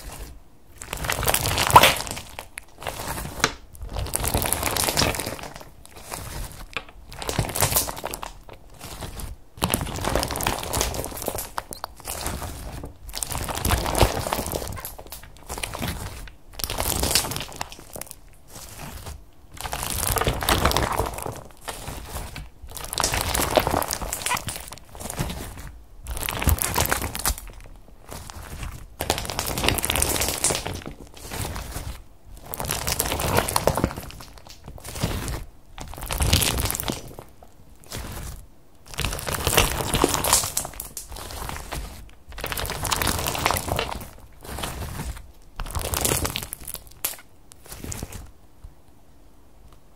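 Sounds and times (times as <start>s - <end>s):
slime squishing and crackling: 0.0s - 48.4s.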